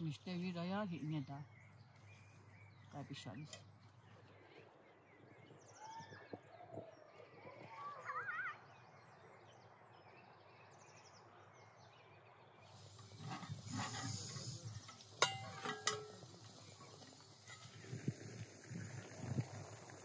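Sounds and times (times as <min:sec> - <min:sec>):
faint outdoor ambience: 0:00.0 - 0:20.0
faint steam hiss: 0:12.6 - 0:20.0
metallic clinks of bowl on pot: 0:14.8 - 0:16.3.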